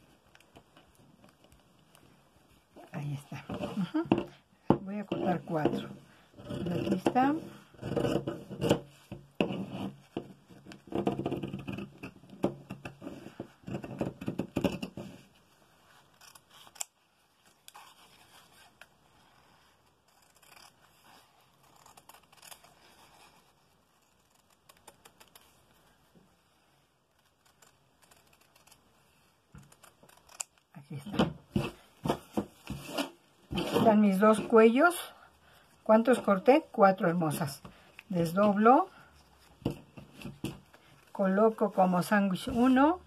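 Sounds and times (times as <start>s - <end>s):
cloth rustling on tabletop: 31.5s - 34.9s.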